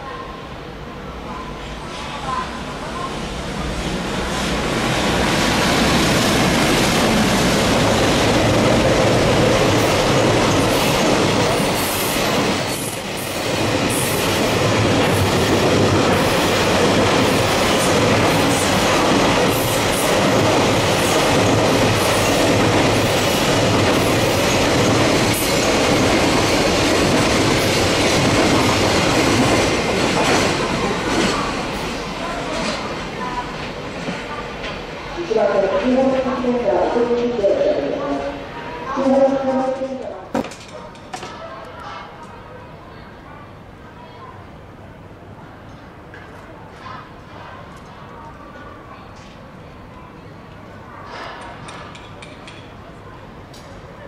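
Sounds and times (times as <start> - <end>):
freight train passing: 0.0 - 40.4.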